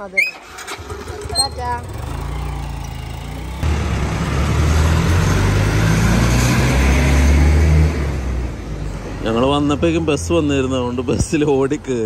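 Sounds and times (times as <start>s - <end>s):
bus diesel engine droning: 0.2s - 11.1s.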